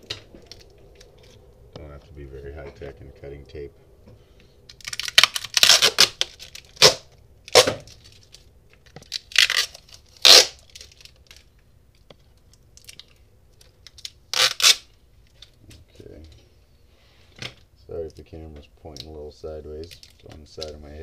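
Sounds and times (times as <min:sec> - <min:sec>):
tape tearing: 0:04.7 - 0:11.6, 0:12.8 - 0:15.6, 0:19.8 - 0:20.8.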